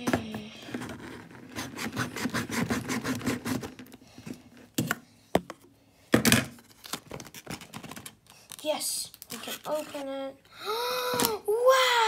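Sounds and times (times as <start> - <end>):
fingers scraping cardboard box: 0.8 - 3.9.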